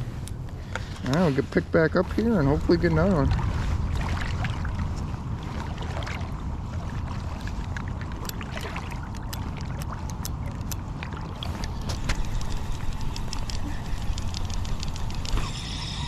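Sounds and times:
wind noise on microphone: 0:02.2 - 0:16.0
light clicks and taps: 0:08.2 - 0:15.4.

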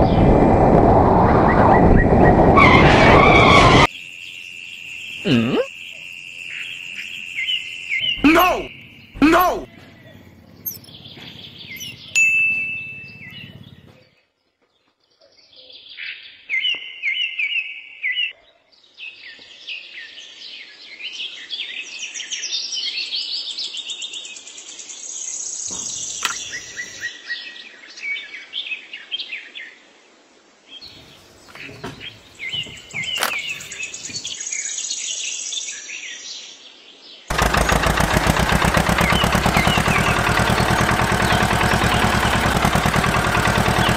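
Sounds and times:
birds chirping and singing: 0:05.1 - 0:12.2, 0:12.8 - 0:14.2, 0:25.6 - 0:27.1, 0:30.8 - 0:34.7, 0:37.4 - 0:43.9
rapid mechanical rattle: 0:37.3 - 0:43.9.

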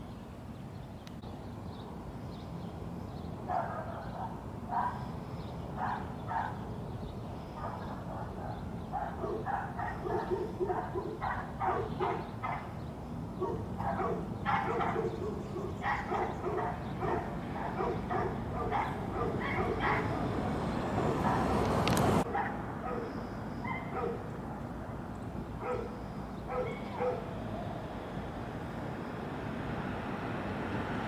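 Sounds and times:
dog barking: 0:03.5 - 0:05.1, 0:05.8 - 0:06.6, 0:07.6 - 0:12.8, 0:13.4 - 0:20.2, 0:21.0 - 0:21.5, 0:22.3 - 0:24.7, 0:25.6 - 0:27.3.

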